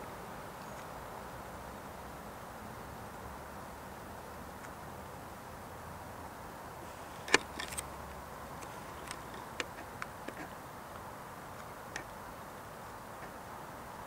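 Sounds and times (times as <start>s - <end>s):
steady background noise: 0.0s - 14.0s
sharp clicks: 8.6s - 10.6s.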